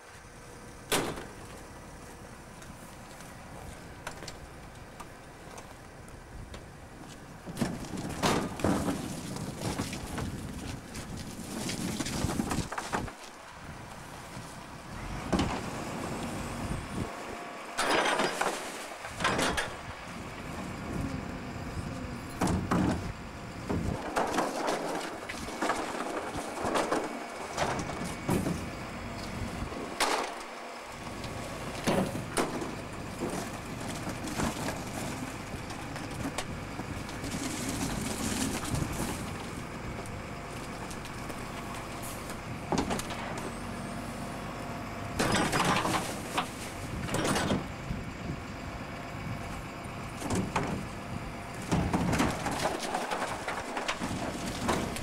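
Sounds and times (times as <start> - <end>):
garbage truck compactor running: 0.0 - 55.0
trash crunching and clattering: 0.8 - 44.1, 44.8 - 55.0.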